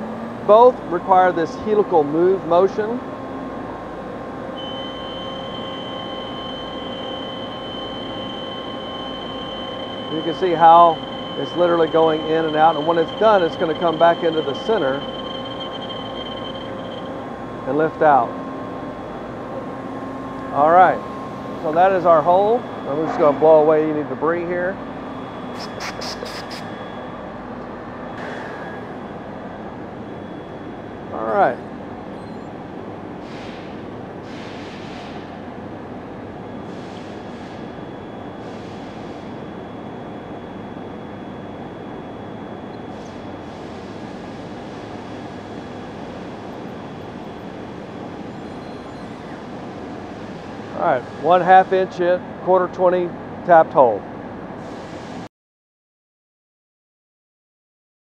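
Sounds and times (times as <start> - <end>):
router spindle high whine: 0.0 - 33.1, 35.9 - 52.2
steady shop hum: 0.0 - 55.3
compressed air hissing: 25.5 - 26.7.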